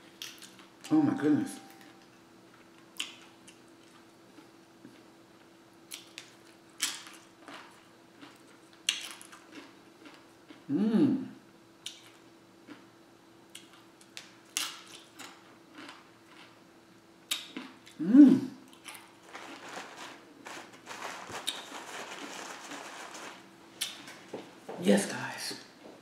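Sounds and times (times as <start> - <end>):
chip crunching: 5.9 - 10.6, 13.6 - 16.6, 18.7 - 24.1
short voiced hum: 10.7 - 11.4, 18.0 - 18.6
soft rustling: 19.2 - 23.5.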